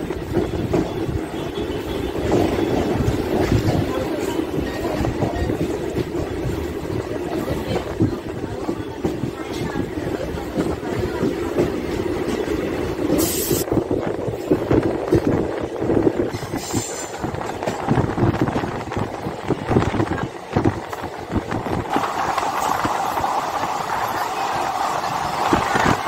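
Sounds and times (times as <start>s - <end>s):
rushing noise: 21.4s - 26.0s.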